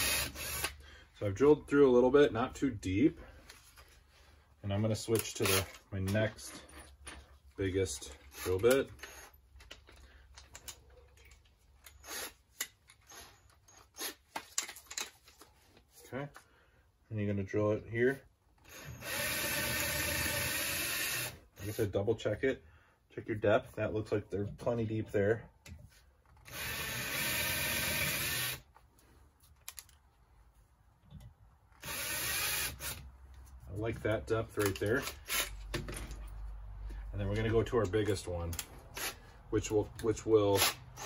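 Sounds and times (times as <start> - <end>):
power drill boring into metal: 0.0 - 0.8, 18.7 - 21.8, 26.5 - 28.6, 31.8 - 33.0
drill chuck clicks and rattles: 8.1 - 15.2.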